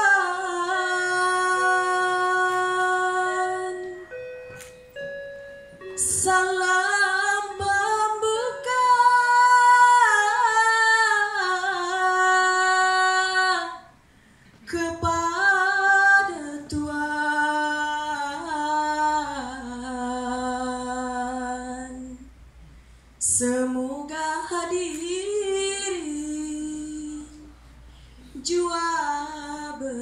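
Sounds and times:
woman singing ornamented song: 0.0 - 13.9, 14.6 - 22.3, 28.4 - 30.0.

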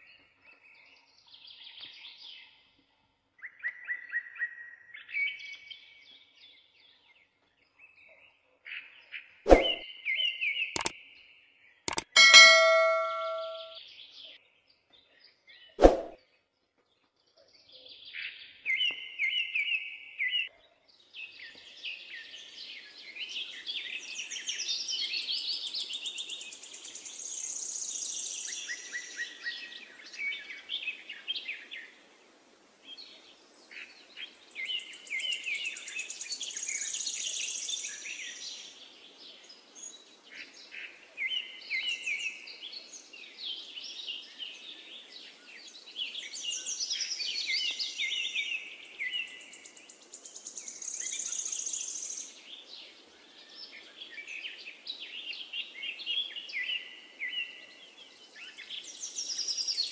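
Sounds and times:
button click: 9.5 - 9.8, 11.9 - 13.8
bell-like ding: 11.9 - 13.8.

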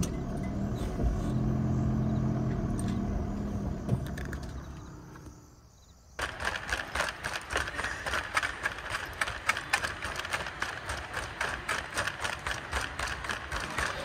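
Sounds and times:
van engine idling: 0.0 - 5.4
shopping trolley rattling: 6.2 - 14.0.

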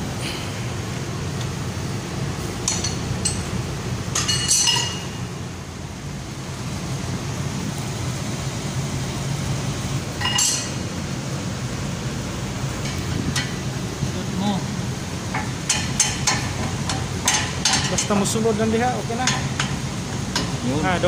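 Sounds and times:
low machinery hum: 0.0 - 21.0
tools clinking on steel pipe: 4.2 - 5.2, 10.2 - 10.8, 15.3 - 18.2.

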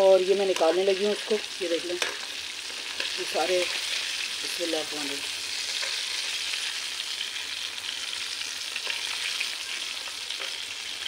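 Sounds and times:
chicken deep-frying in oil: 0.0 - 11.0.

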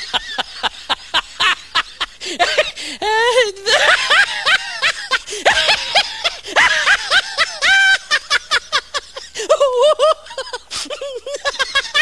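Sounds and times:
high-pitched laughter: 3.1 - 12.0.

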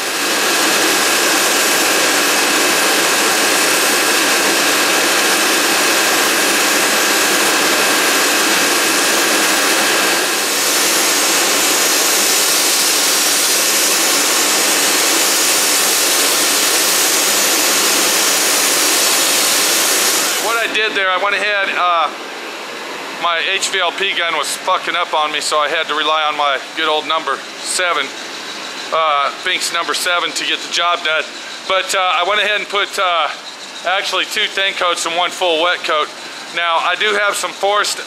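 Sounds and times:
paint spray gun hissing: 0.0 - 20.7.

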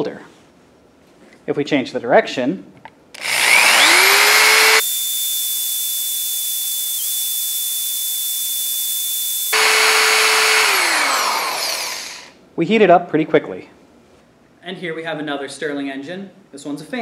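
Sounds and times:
cordless drill whining: 3.2 - 12.4.

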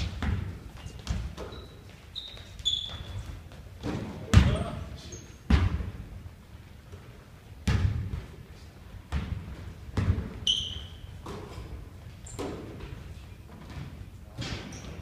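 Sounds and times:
basketball bouncing on wooden floor: 0.0 - 1.7, 2.6 - 4.7, 5.5 - 5.9, 7.6 - 8.3, 9.1 - 10.4
sneaker squeaking on floor: 0.0 - 5.8, 10.0 - 15.0.

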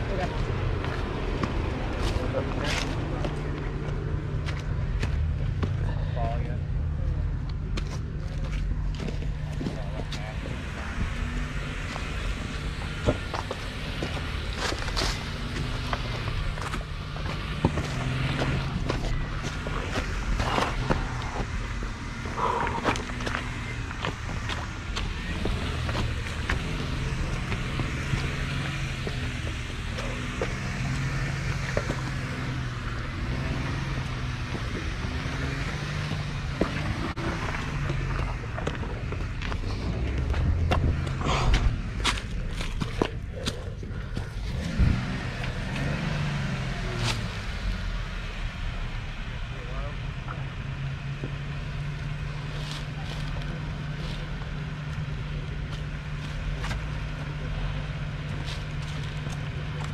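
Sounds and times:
vehicle engine running: 0.0 - 59.9
wind: 0.0 - 59.9
tyre noise: 7.0 - 48.5.

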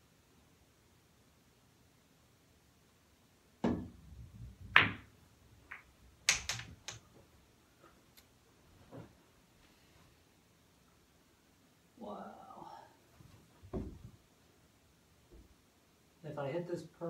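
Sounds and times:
pool balls clacking: 3.6 - 7.1
cue striking cue ball: 4.7 - 5.1.

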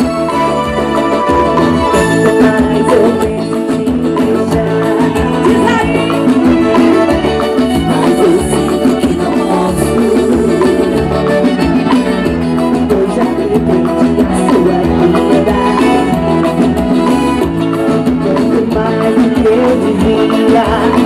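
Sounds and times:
accordion: 0.0 - 21.0
live band playing: 0.0 - 21.0
woman singing into microphone: 1.9 - 11.2, 18.1 - 21.0.

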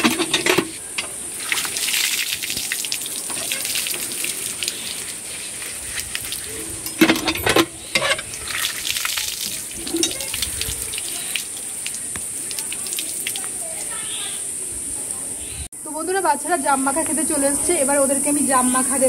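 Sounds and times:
water gushing from hand pump: 0.0 - 14.0
water splashing on concrete: 0.8 - 7.0, 7.7 - 14.4.

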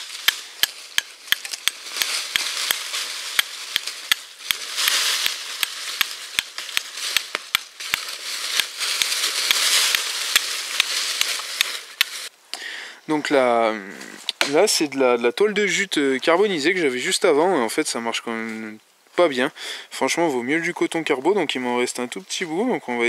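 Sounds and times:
fire steel scraping flint: 0.0 - 12.3.

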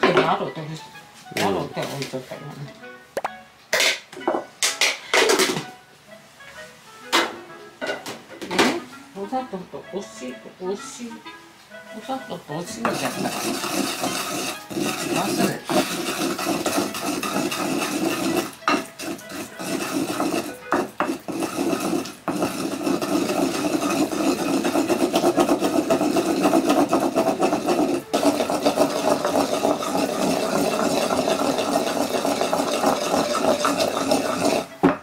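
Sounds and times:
pestle grinding in mortar: 12.8 - 35.0.

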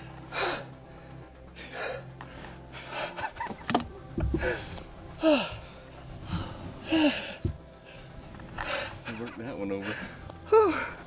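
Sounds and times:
low thumps: 3.3 - 8.9
people whispering breathily: 4.3 - 11.0.

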